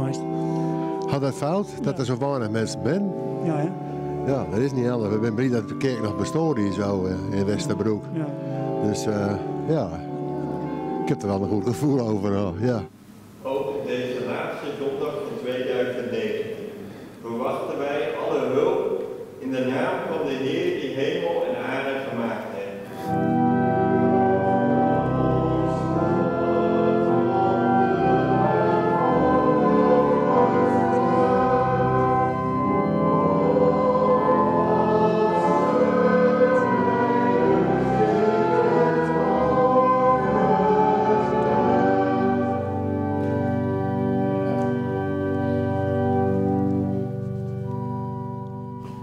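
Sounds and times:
church organ chords: 0.0 - 49.0
congregation singing a hymn: 1.0 - 3.9, 13.5 - 49.0.

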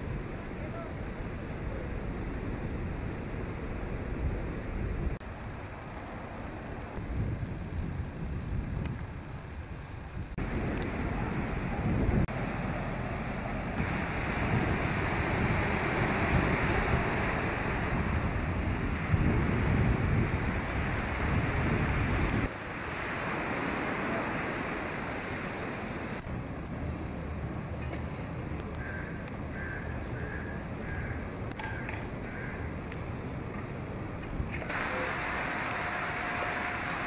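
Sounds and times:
sea surf on sandy beach: 0.0 - 37.0
wind buffeting microphone: 10.2 - 12.5, 13.7 - 23.2.

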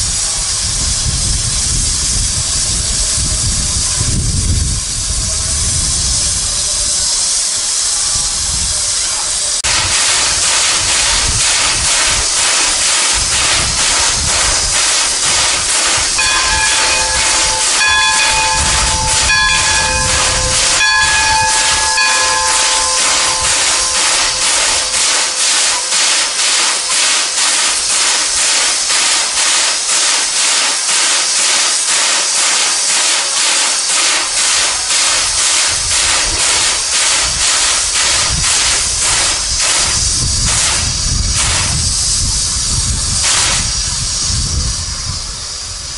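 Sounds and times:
steam locomotive venting steam: 0.0 - 45.9
steam whistle toots: 12.8 - 27.7.

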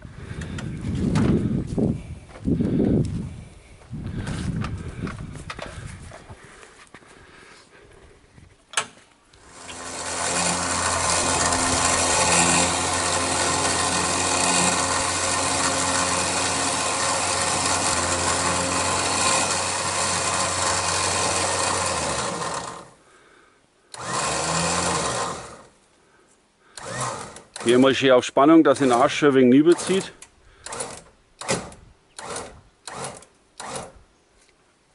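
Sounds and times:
electric winch motor running: 9.4 - 23.1, 23.9 - 25.8, 26.7 - 28.0, 28.7 - 34.0.

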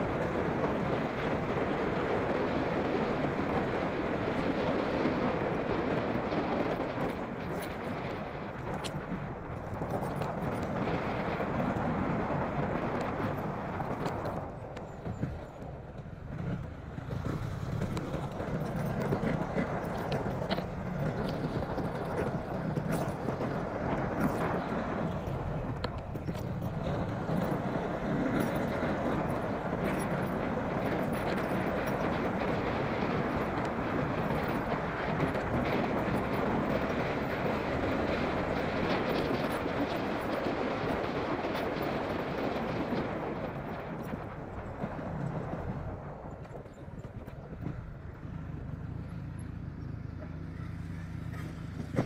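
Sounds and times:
motorcycle engine running: 46.3 - 52.0.

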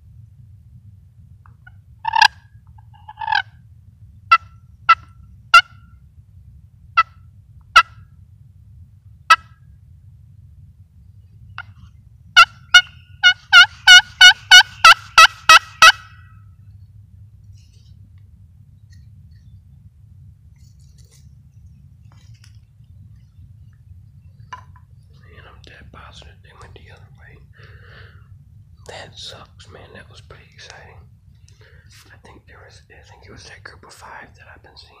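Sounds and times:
turkey yelps: 1.5 - 2.4, 3.0 - 3.5, 12.4 - 16.3
turkey clucks: 1.5 - 3.5, 12.4 - 16.2.

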